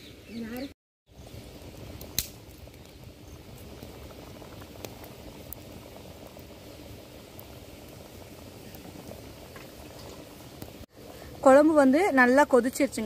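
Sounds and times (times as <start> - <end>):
thick gravy bubbling in pot: 1.1 - 13.0.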